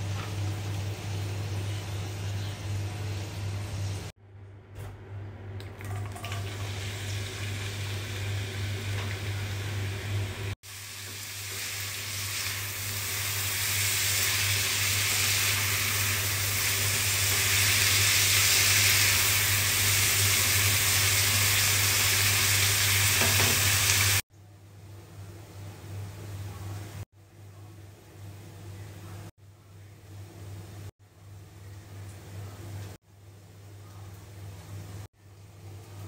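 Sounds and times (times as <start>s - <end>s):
onions sizzling in frying pan: 6.4s - 24.2s.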